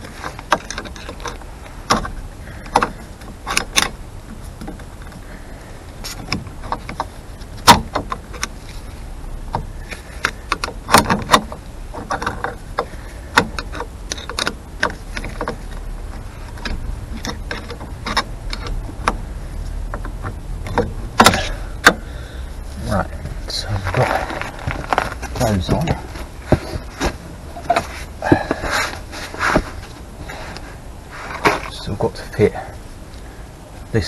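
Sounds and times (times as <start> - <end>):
metallic clicks and knocks: 0.0 - 5.2, 6.0 - 8.6, 9.5 - 22.1.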